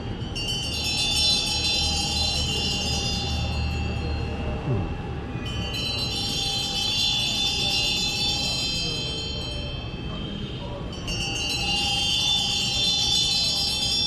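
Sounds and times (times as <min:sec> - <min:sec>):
hand bells ringing: 0:00.0 - 0:04.6, 0:05.4 - 0:14.0.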